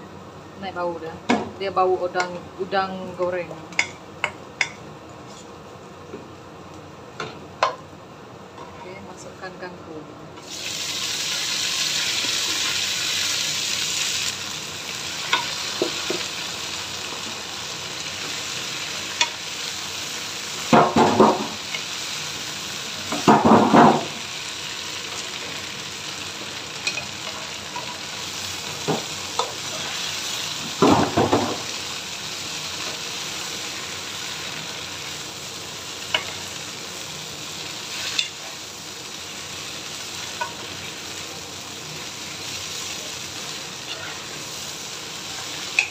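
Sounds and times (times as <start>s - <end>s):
greens sizzling in hot wok: 10.4s - 45.9s.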